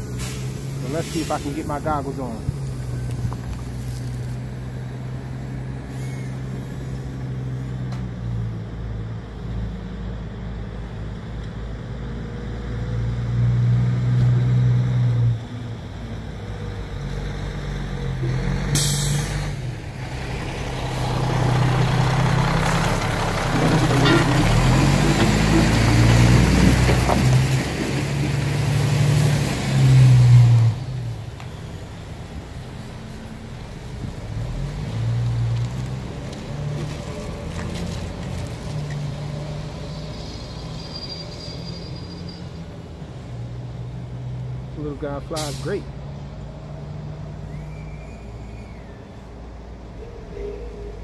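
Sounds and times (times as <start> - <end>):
truck diesel engines revving: 0.0 - 51.0
air brake hiss: 0.1 - 1.6, 5.8 - 7.1, 18.8 - 19.3, 45.4 - 45.8.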